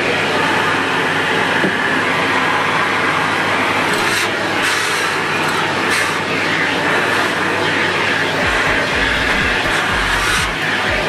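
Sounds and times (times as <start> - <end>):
vacuum cleaner hissing: 3.8 - 11.0.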